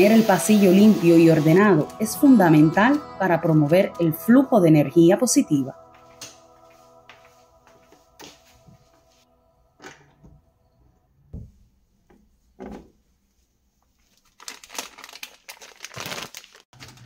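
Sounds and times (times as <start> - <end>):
plastic packet crinkling: 14.0 - 17.0.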